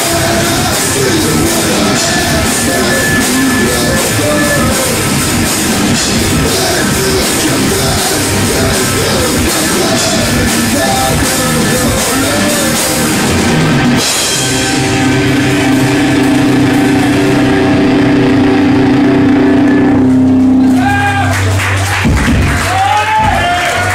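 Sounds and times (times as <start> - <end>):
rock band playing live: 0.0 - 23.9
held guitar chord ringing: 13.3 - 21.3.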